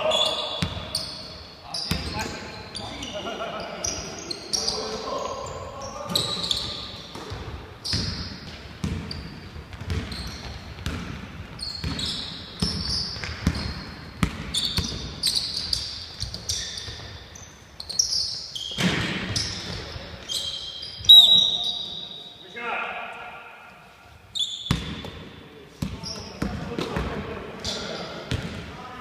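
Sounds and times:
sneakers squeaking: 0.0s - 22.6s, 23.7s - 28.8s
basketball bouncing on wooden floor: 7.1s - 15.2s.

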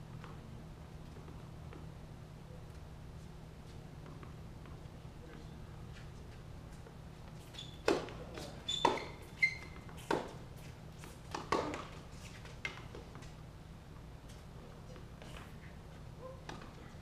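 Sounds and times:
tennis ball bouncing on hard court: 7.7s - 10.4s, 11.0s - 12.0s
tennis ball struck by rackets: 7.8s - 8.2s.

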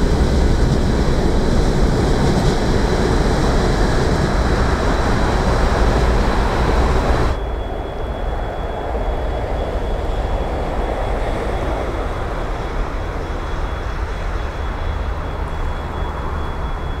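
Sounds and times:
distant train rumble: 0.0s - 17.0s
thin high whine: 2.5s - 12.2s.

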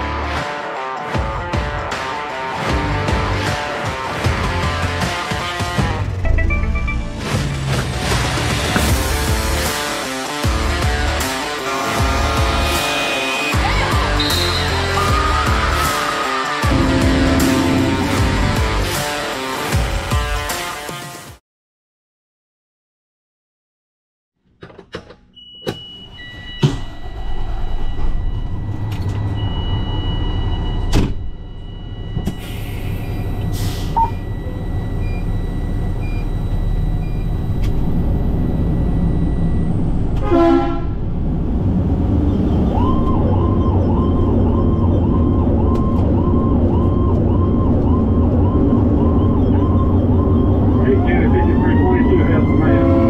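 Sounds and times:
electronic siren cycling: 14.2s - 18.6s, 26.2s - 40.2s, 42.7s - 53.0s
diesel engine running: 16.6s - 19.1s, 31.5s - 53.0s
high electronic warning tone: 16.7s - 18.7s, 27.0s - 40.1s, 43.4s - 53.0s.

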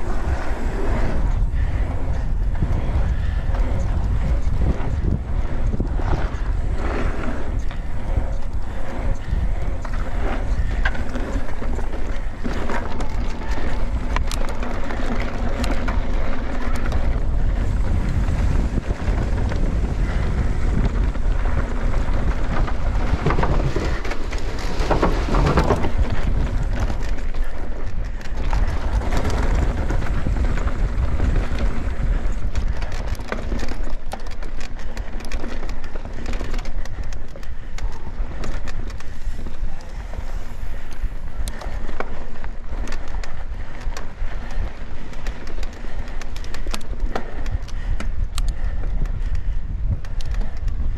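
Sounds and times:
bike tyres rolling on trail: 0.0s - 50.9s
wind buffeting microphone: 0.0s - 50.9s
tyres rattling over wooden bridge: 7.6s - 45.0s.

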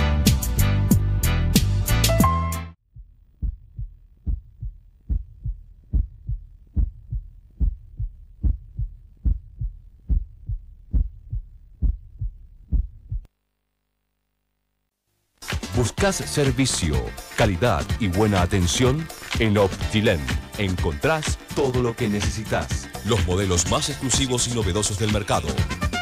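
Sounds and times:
music: 0.0s - 2.8s, 15.4s - 26.0s
heartbeat lub-dub beats: 2.9s - 13.3s.

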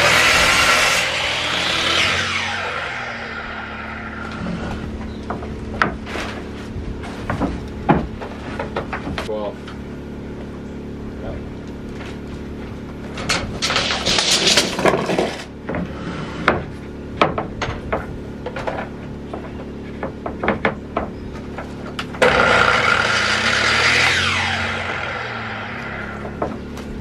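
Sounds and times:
miter saw motor whine: 0.0s - 5.7s, 22.1s - 27.0s
wooden board clicks and knocks: 16.5s - 22.2s.

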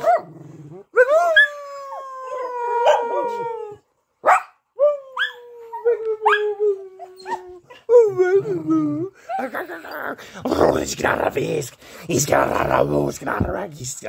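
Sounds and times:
dog howling: 0.0s - 3.8s, 4.8s - 9.1s
dog yipping: 2.8s - 3.4s, 4.2s - 4.6s, 6.2s - 6.4s.

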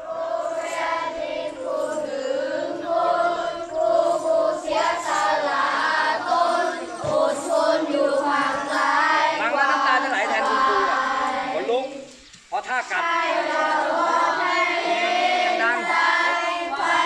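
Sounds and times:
children singing in unison: 0.0s - 17.0s.

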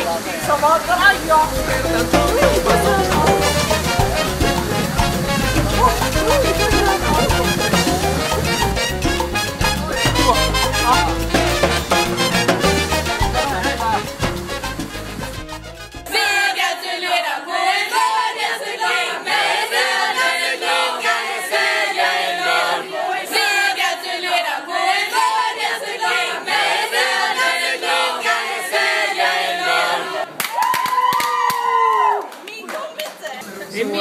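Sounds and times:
girls singing a chant: 16.1s - 30.4s
long held shout: 30.5s - 32.3s.

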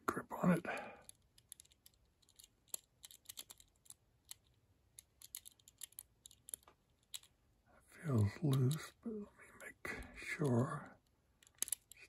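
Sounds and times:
padlock wheels clicking: 1.0s - 7.4s, 11.4s - 12.0s.

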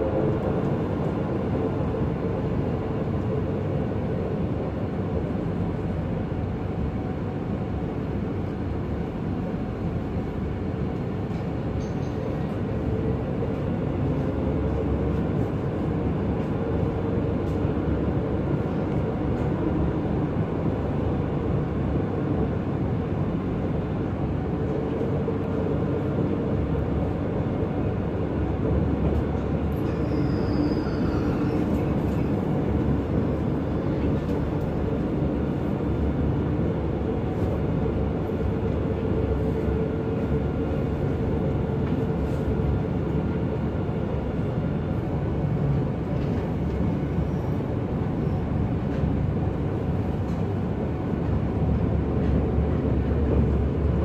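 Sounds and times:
train rumble and hum: 0.0s - 54.0s
faint high squeal: 29.8s - 31.9s.

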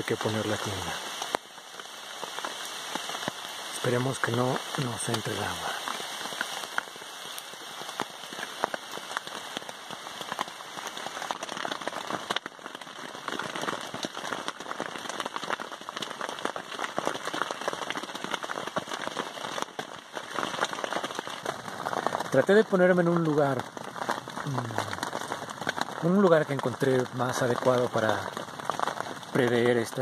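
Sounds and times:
heavy rain: 0.0s - 30.0s
rain on tent fabric: 0.0s - 30.0s.

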